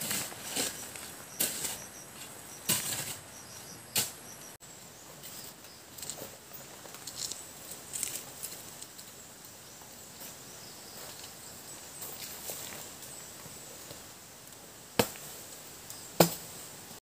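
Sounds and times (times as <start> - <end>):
rustling crunches: 0.0 - 4.4, 5.2 - 9.0
insects trilling: 0.0 - 16.6.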